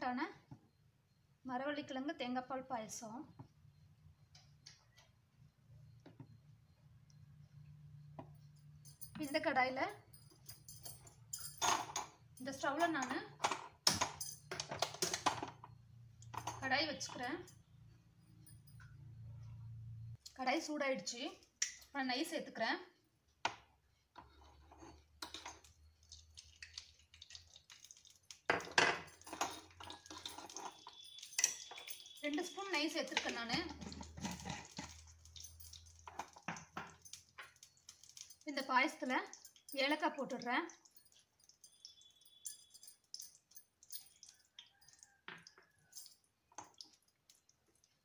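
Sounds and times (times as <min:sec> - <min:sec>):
kitchen utensils clicking: 0:28.4 - 0:36.5
metal spoon scraping a pan: 0:33.0 - 0:35.2.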